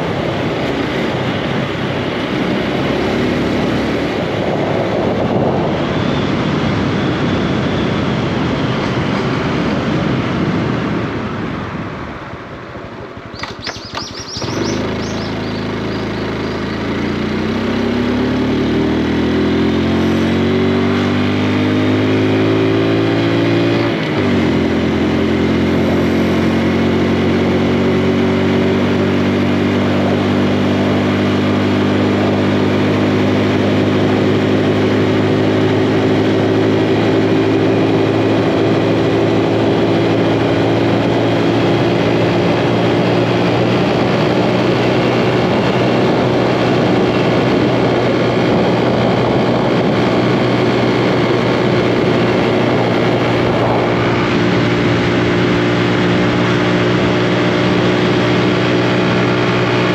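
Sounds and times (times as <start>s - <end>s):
motorcycle engine pulling away: 13.3s - 59.9s.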